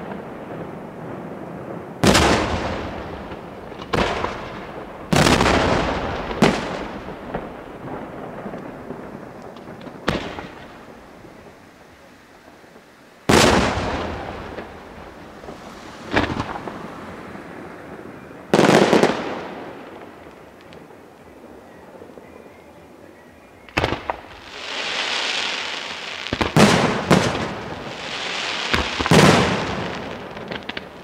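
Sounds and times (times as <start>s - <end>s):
rolling echo: 12.8s - 24.5s
firework shells bursting: 23.7s - 31.0s.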